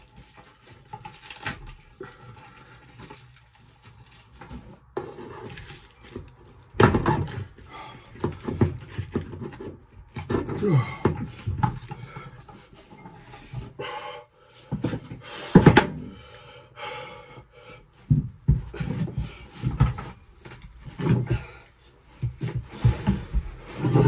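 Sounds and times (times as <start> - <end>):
hand tool scraping plywood floor: 4.4 - 6.4, 18.0 - 24.0.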